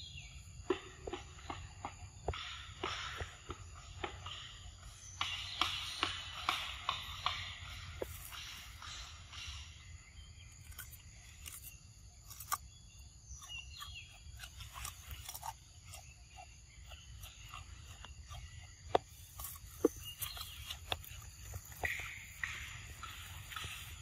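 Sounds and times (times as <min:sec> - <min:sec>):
monkey chewing leaves: 0:10.5 - 0:24.0
small clicks and crunches: 0:10.6 - 0:16.1.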